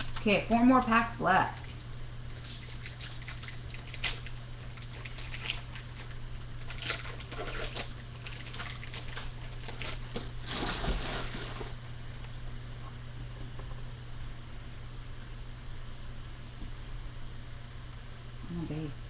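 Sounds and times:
foil wrapper crinkling and tearing: 0.0s - 11.8s
steady low hum: 0.0s - 19.0s.

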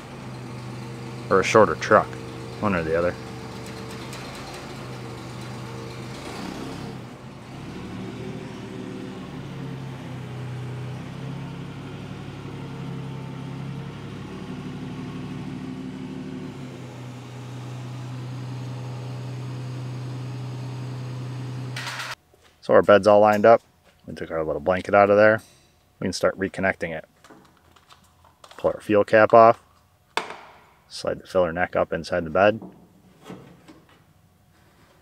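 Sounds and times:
forklift engine humming: 0.0s - 22.2s.

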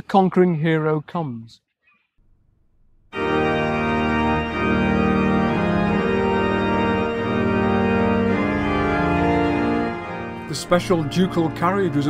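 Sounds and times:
organ chords: 2.9s - 12.0s.

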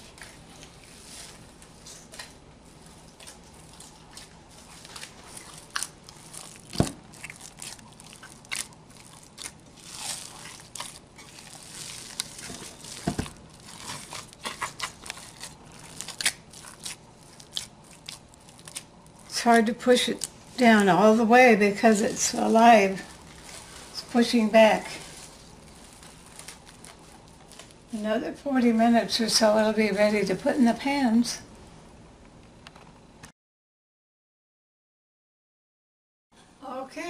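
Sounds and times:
bread dough crackling: 0.0s - 28.4s.

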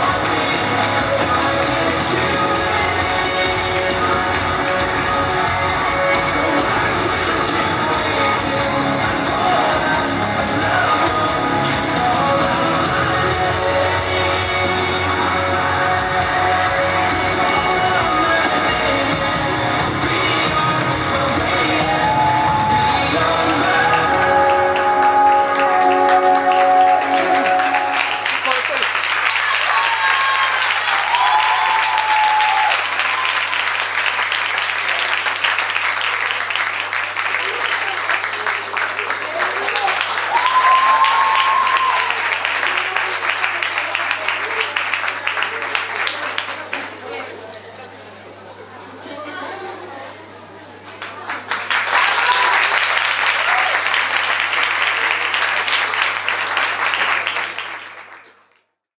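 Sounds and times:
audience applauding: 0.0s - 47.3s, 50.9s - 58.7s
long held cheers: 21.3s - 35.2s, 37.2s - 44.8s, 51.9s - 55.4s.

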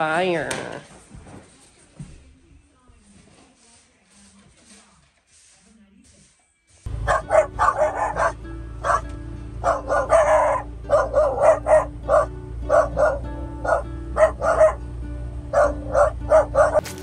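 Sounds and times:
dogs barking and yipping: 6.9s - 17.0s
low engine rumble: 6.9s - 17.0s.

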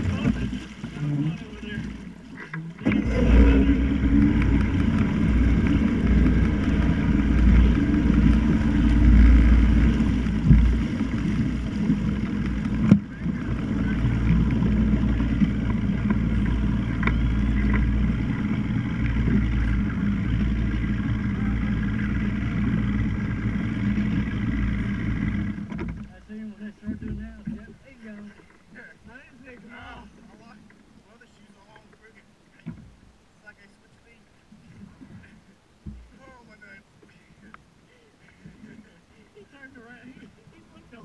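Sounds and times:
motorboat running: 0.0s - 41.0s
wind rumble on microphone: 2.8s - 26.1s.

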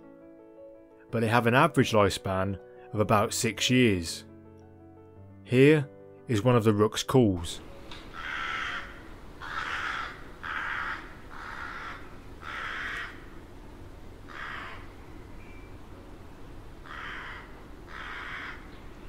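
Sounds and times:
rook cawing: 8.1s - 13.4s, 14.2s - 15.0s, 16.8s - 18.9s.

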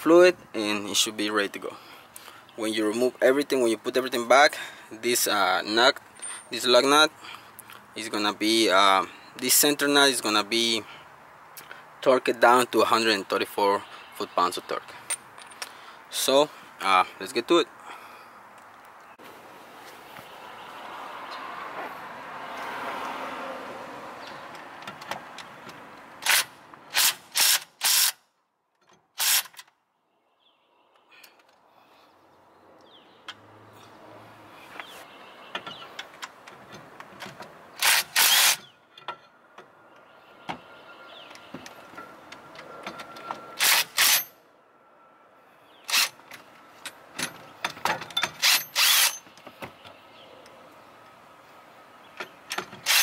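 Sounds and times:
impact wrench hammering bursts: 37.8s - 38.7s, 48.2s - 49.2s, 52.5s - 53.0s.

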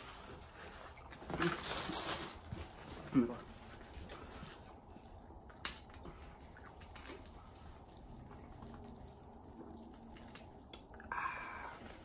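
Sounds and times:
wet sloshing in plastic bottle: 3.6s - 11.0s.

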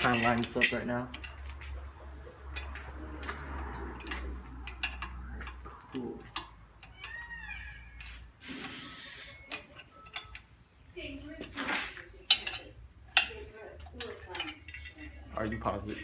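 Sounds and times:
tools clinking on metal: 0.0s - 7.3s, 7.9s - 10.7s, 11.4s - 16.0s.

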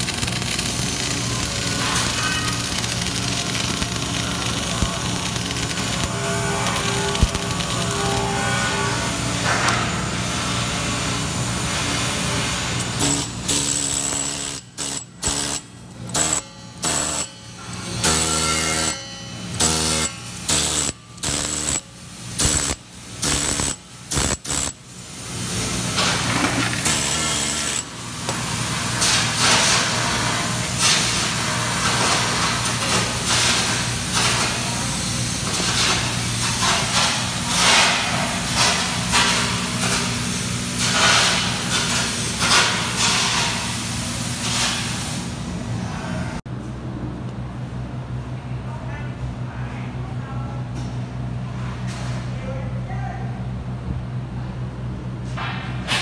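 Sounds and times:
needle scaler chattering on steel: 0.0s - 6.1s, 12.8s - 19.0s, 19.6s - 24.8s, 26.8s - 27.9s
machine hum with hiss: 0.0s - 46.4s.

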